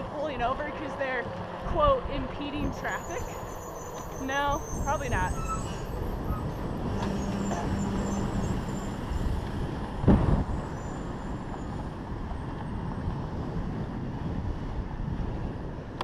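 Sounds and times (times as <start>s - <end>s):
dump truck engine running: 0.0s - 13.9s
wind rushing over microphone: 0.0s - 16.0s.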